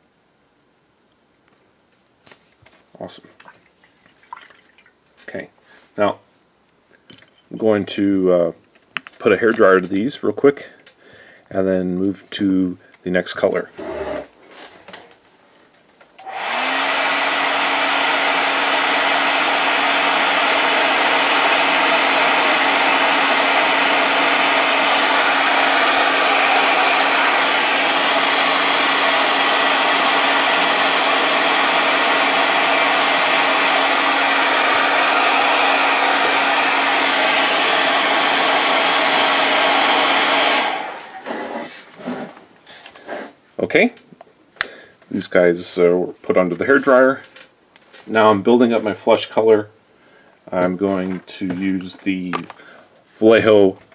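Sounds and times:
hair dryer switch: 0:16.2 - 0:41.2
hair dryer blowing: 0:16.2 - 0:41.8.

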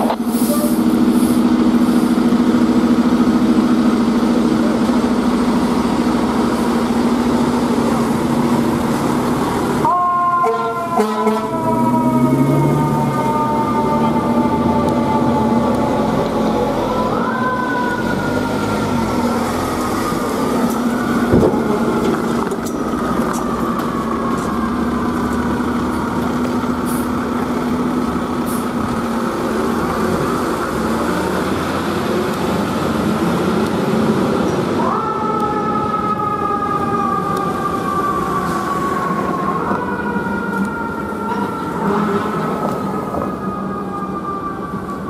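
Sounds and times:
diesel engines humming: 0:00.0 - 0:45.0
fire siren winding: 0:34.9 - 0:45.0.

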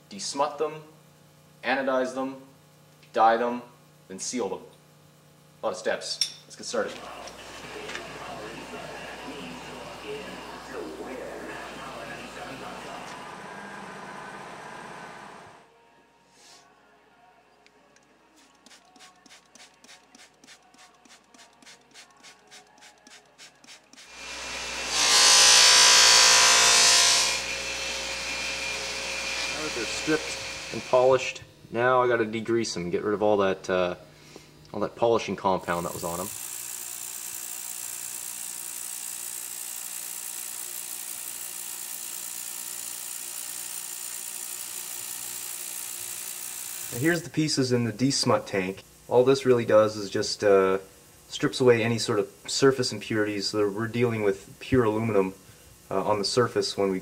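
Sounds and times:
bench buffer motor running: 0:06.8 - 0:15.7, 0:22.8 - 0:31.4, 0:35.6 - 0:49.3
ultrasonic cleaner hissing: 0:06.9 - 0:15.6, 0:18.3 - 0:24.9, 0:27.5 - 0:31.4, 0:35.6 - 0:57.0
spray bottle squirting: 0:18.4 - 0:24.1.

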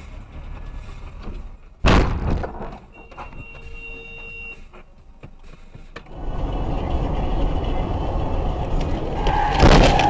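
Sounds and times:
car interior road noise: 0:02.7 - 0:10.0.

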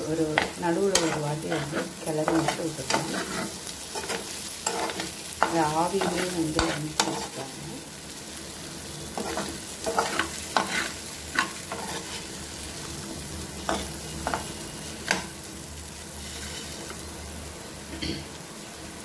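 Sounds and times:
potatoes sizzling in a pan: 0:00.0 - 0:19.0
metal spoon scraping a pan: 0:00.3 - 0:07.4, 0:09.1 - 0:12.4, 0:13.6 - 0:15.3, 0:16.2 - 0:17.0.

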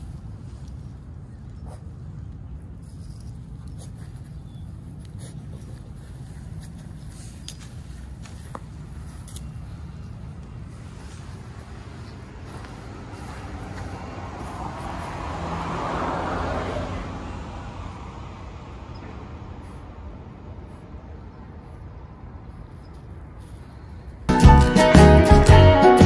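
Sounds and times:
vehicle passing by: 0:09.8 - 0:22.6.

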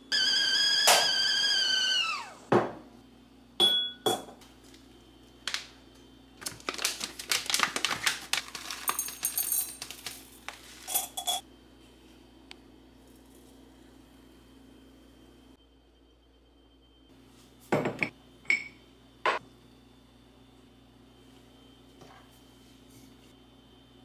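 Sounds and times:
kettle whistle: 0:00.0 - 0:02.5
tea bag crinkling: 0:06.4 - 0:11.0
mug set down on counter: 0:17.7 - 0:18.7.

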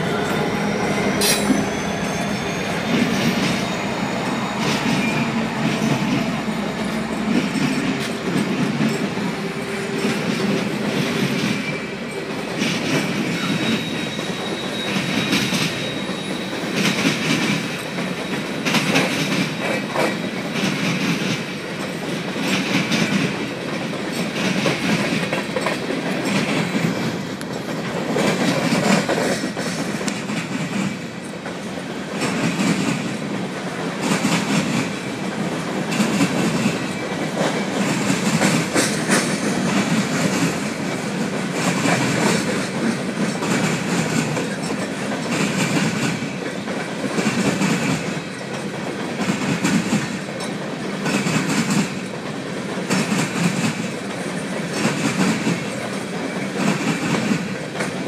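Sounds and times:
high wheel squeal: 0:00.0 - 0:07.9, 0:13.3 - 0:17.0
diesel locomotive engines: 0:00.0 - 0:58.0
train rumble: 0:00.0 - 0:58.0
train wheels clattering over rail joints: 0:04.4 - 0:58.0.

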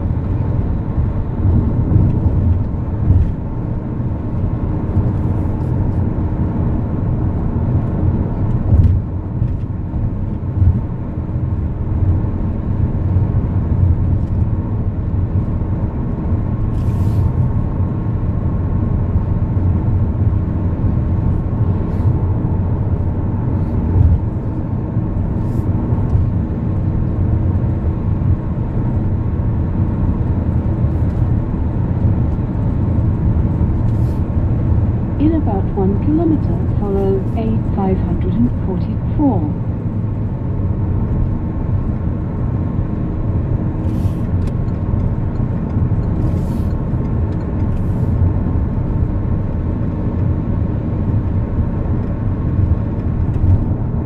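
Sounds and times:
car cabin road rumble: 0:00.0 - 0:54.0
faint steady hum: 0:35.1 - 0:39.8.

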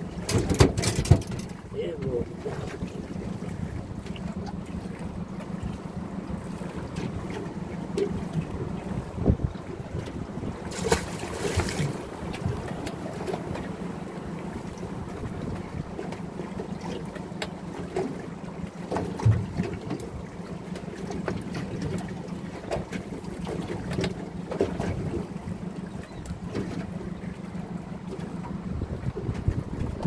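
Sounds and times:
water against boat hull: 0:00.0 - 0:30.0
wind on microphone: 0:08.0 - 0:13.7, 0:28.5 - 0:30.0.

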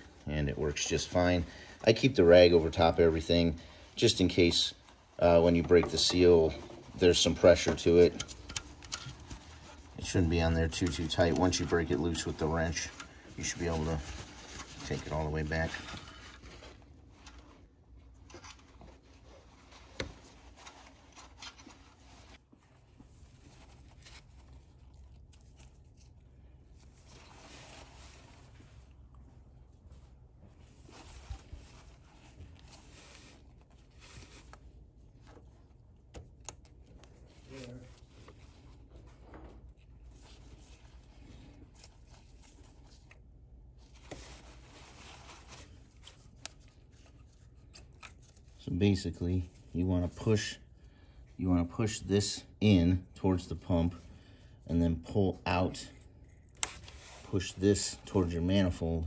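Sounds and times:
paper towel rustling: 0:00.0 - 0:36.0, 0:37.0 - 0:50.6
handling noise with small clicks: 0:04.8 - 0:48.7, 0:56.0 - 0:57.6.

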